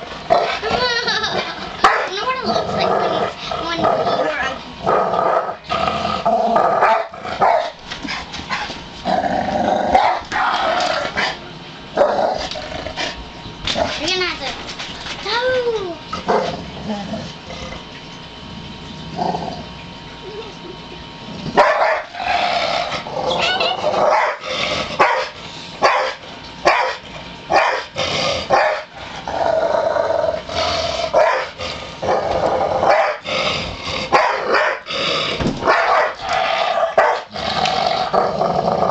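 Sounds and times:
dog growling: 0.3s - 7.5s, 9.0s - 11.4s, 12.0s - 14.0s, 16.1s - 17.9s, 19.1s - 19.8s, 21.4s - 25.0s, 27.9s - 38.9s
dog barking: 1.8s - 2.2s, 6.8s - 7.8s, 21.6s - 22.1s, 24.1s - 24.4s, 25.0s - 27.9s, 28.5s - 28.9s, 31.2s - 31.5s, 32.9s - 33.2s, 34.1s - 34.9s, 35.6s - 36.2s, 37.0s - 37.3s.

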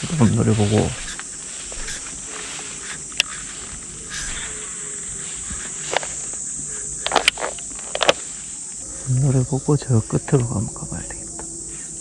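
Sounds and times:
handling clicks and rustles: 0.0s - 8.8s
insects chirring: 0.0s - 12.0s.

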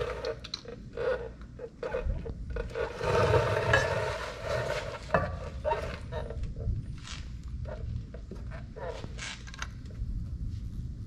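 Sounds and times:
plastic scoop scraping on metal: 2.0s - 6.3s.

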